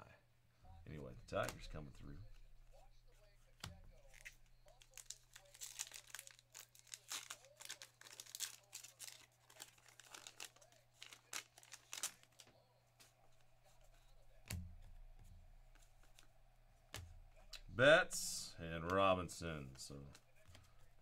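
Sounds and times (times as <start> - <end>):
paper wrapper tearing and crinkling: 4.0 - 12.5.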